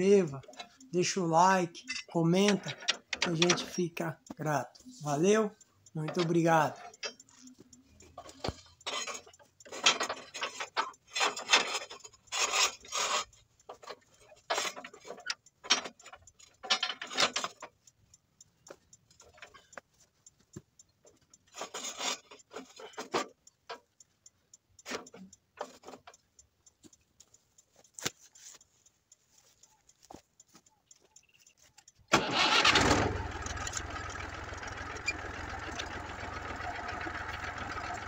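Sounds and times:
faint regular ticking: 0.0 - 38.0
steel frame scraping and rattling: 8.2 - 15.9, 21.5 - 23.1.

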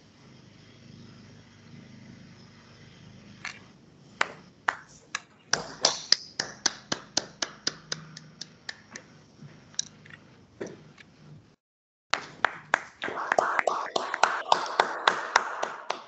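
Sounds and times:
hand clapping: 4.2 - 9.1, 12.2 - 16.0.

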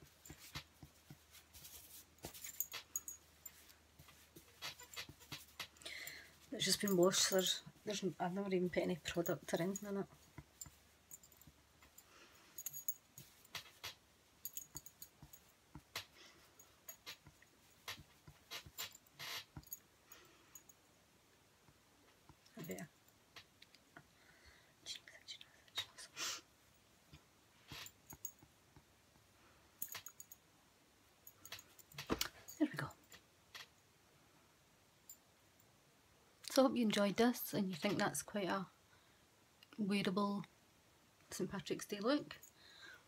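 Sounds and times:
fingers rustling through hair: 0.0 - 19.8
metal bangles clinking: 0.0 - 20.8, 26.7 - 28.5, 29.8 - 30.4, 31.2 - 33.7.

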